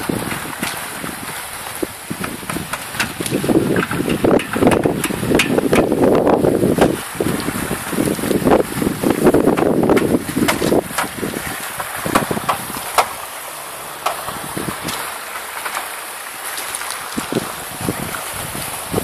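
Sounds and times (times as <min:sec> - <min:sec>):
wind buffeting microphone: 0:00.0 - 0:19.0
sharp clicks and knocks: 0:02.2 - 0:06.0, 0:09.5 - 0:11.2, 0:11.8 - 0:13.3, 0:14.0 - 0:15.9.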